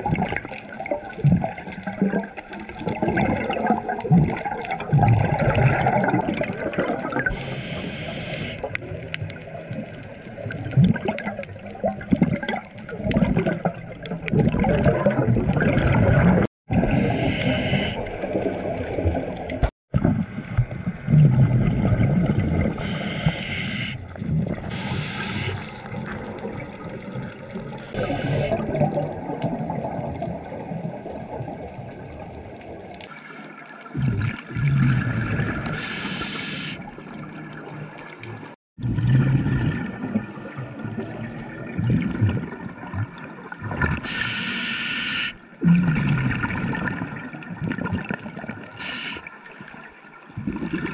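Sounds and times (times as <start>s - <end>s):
exhaled bubbles gurgling underwater: 0.0s - 50.9s
regulator hissing inhalations: 7.3s - 8.7s, 16.9s - 18.1s, 22.7s - 24.0s, 24.7s - 25.9s, 28.0s - 28.6s, 35.8s - 36.8s, 44.0s - 45.4s, 48.8s - 49.3s.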